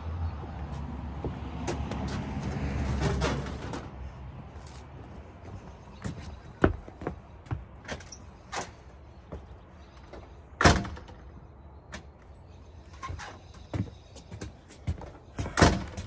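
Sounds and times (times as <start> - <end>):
scraping slides with squeak: 12.4 - 13.6.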